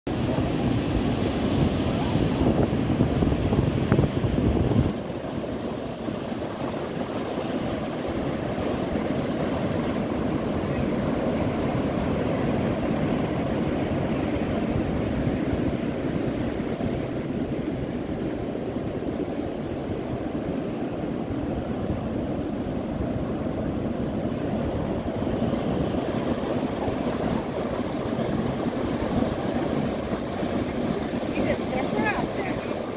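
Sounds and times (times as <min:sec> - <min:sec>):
waves breaking on sandy beach: 0:00.1 - 0:32.9
wind buffeting microphone: 0:00.1 - 0:32.9.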